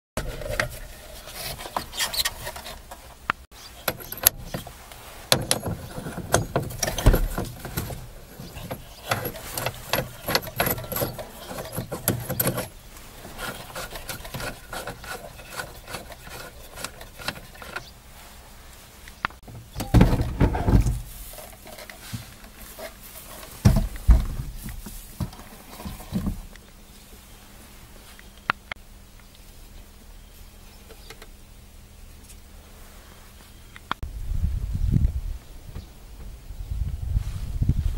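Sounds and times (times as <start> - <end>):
socket tool clatter: 3.8 - 17.9.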